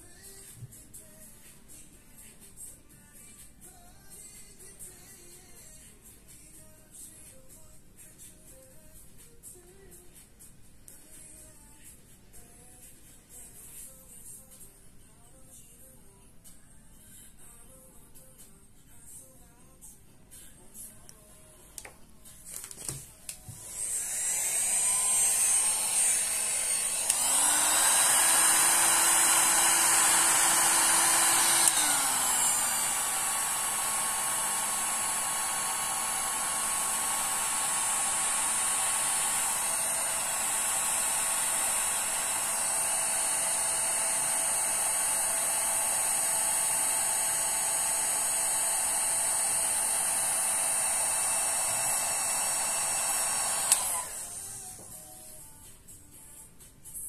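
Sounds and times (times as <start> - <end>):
heat gun fan whining: 22.5 - 55.2.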